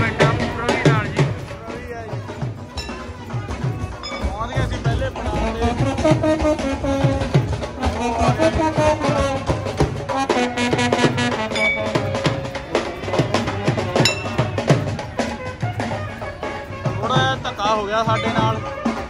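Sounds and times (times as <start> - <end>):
steady drum beat: 0.0 - 19.0
trumpet: 2.2 - 19.0
brass horn holding long notes: 5.8 - 14.7.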